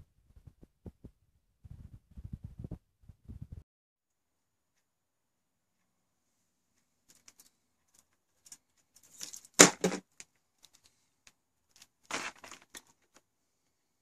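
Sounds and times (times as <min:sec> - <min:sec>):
cable clicks: 0:06.8 - 0:13.3
cables rustling: 0:06.8 - 0:13.8.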